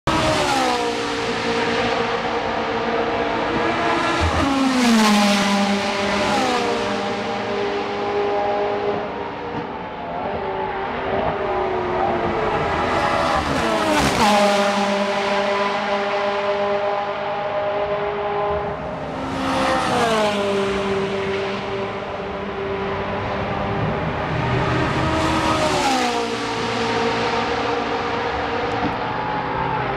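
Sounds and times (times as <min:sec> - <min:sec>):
race cars passing at full throttle: 0:00.1 - 0:29.9.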